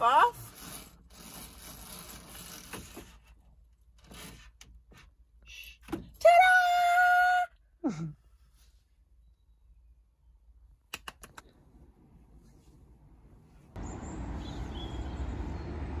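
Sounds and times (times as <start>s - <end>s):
quick clicks: 10.9s - 11.6s.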